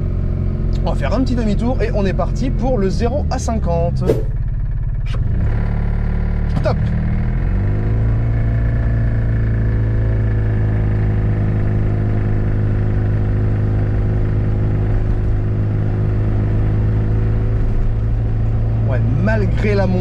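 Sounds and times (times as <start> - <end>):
small car engine accelerating: 3.9 - 20.0.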